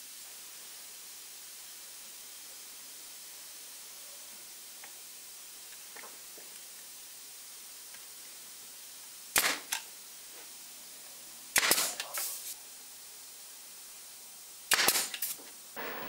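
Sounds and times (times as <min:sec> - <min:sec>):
nail gun firing: 0:09.3 - 0:09.8, 0:11.5 - 0:12.2, 0:14.7 - 0:15.4
sharp clacks: 0:11.6 - 0:12.3, 0:14.7 - 0:15.4.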